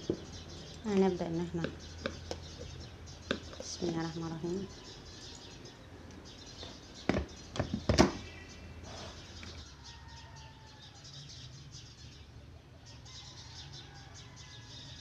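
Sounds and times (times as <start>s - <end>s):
plastic knocks and clicks: 7.1s - 8.2s.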